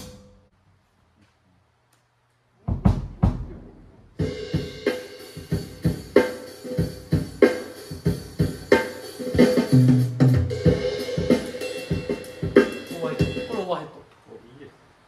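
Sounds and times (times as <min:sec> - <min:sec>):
drum kit beat: 0:00.0 - 0:00.5, 0:02.6 - 0:14.0
loud drum hits: 0:02.7 - 0:03.7.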